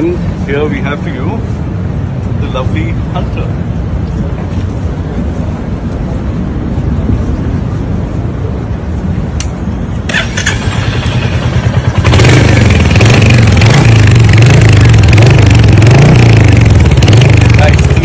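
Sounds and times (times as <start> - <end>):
motorcycle engine revving: 10.1 - 18.0.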